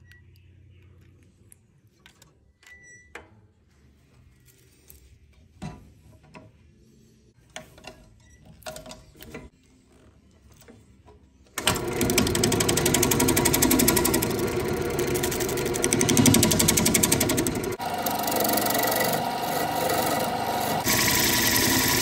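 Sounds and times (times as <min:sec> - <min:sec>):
lathe gouge chattering: 0:11.7 - 0:22.0.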